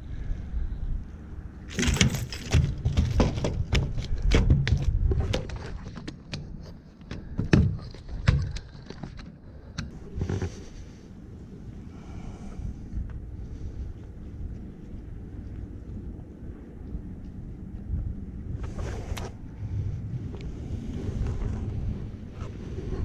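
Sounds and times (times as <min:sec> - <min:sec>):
wind on microphone: 0:09.9 - 0:23.0.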